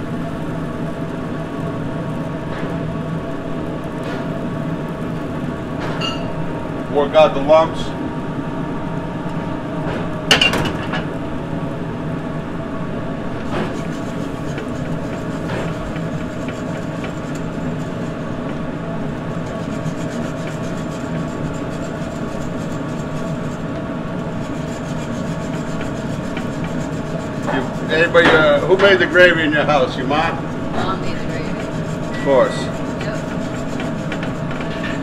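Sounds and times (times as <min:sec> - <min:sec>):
mechanical hum: 0:00.0 - 0:35.0
whisk scraping a metal pan: 0:13.4 - 0:35.0.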